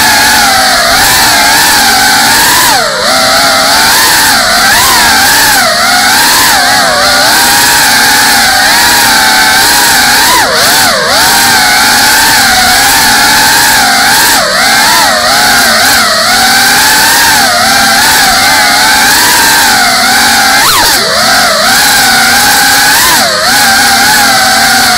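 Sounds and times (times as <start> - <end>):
drone motors whining: 0.0 - 24.9.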